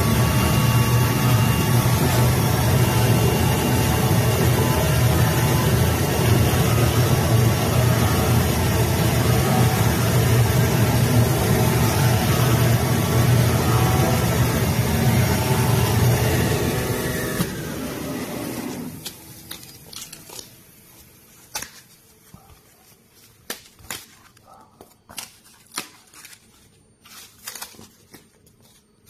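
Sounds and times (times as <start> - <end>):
cutting machine mechanical hum: 0.0 - 21.6.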